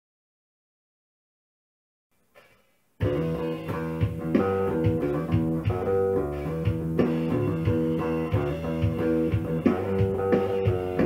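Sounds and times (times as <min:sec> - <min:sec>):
electric bass plucked notes: 0:03.0 - 0:11.0.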